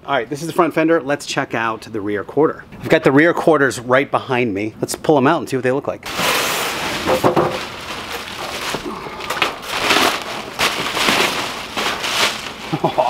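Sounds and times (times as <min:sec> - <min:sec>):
bubble wrap and cardboard rustling: 0:06.1 - 0:13.0.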